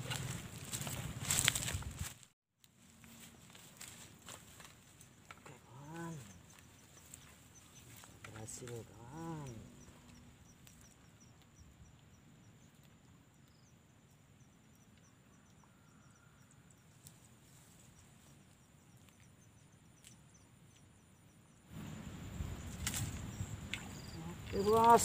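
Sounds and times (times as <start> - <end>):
faint outdoor ambience: 2.6 - 25.0.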